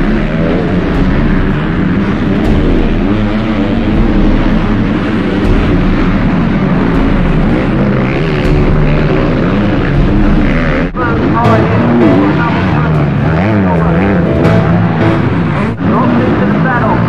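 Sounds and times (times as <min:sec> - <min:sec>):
motocross bike engines revving: 0:00.0 - 0:17.0.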